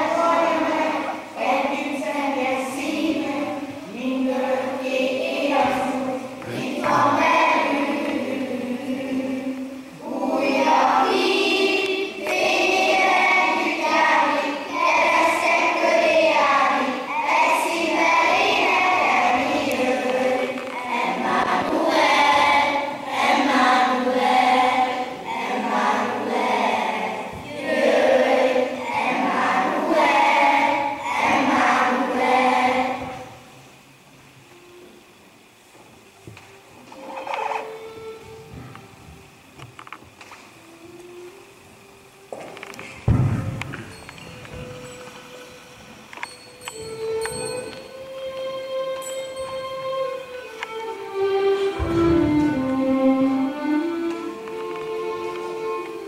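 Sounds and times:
children's choir singing: 0.0 - 35.5, 36.2 - 39.7, 42.3 - 56.0.

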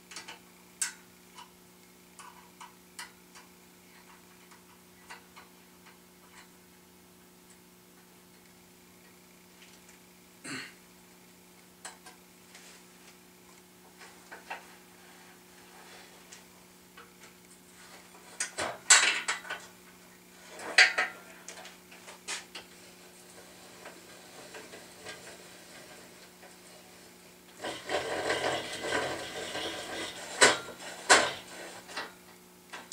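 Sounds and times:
faint steady hum: 0.0 - 32.9.

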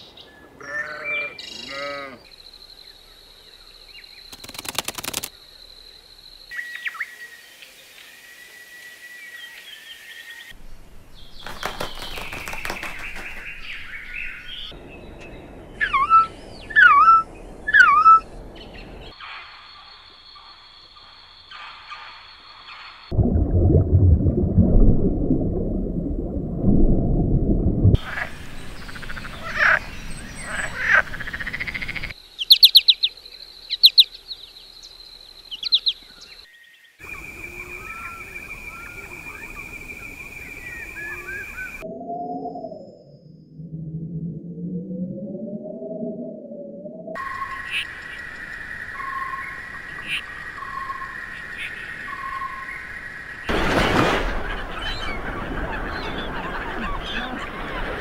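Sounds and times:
rapid clicking and rustling: 4.3 - 5.4
bird calling loudly: 15.8 - 18.3
faint chirping: 28.0 - 43.6.

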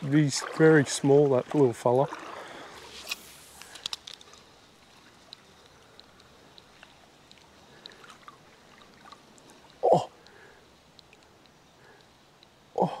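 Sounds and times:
faint mountain stream trickling: 0.0 - 13.0
soft ticks: 5.2 - 8.4, 9.3 - 12.6.

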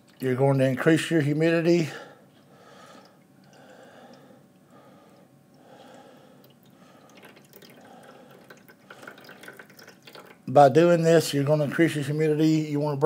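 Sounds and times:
water trickling into plastic: 5.6 - 10.5.

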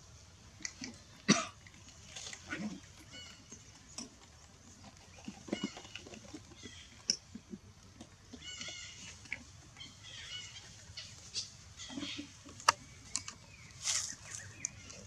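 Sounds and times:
crackle in dry leaves: 12.6 - 15.0.

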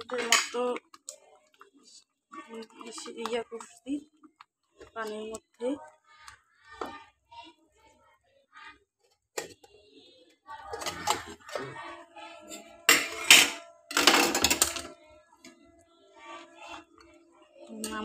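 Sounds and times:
metal tin and knife scraping: 10.6 - 11.6, 12.4 - 14.9.

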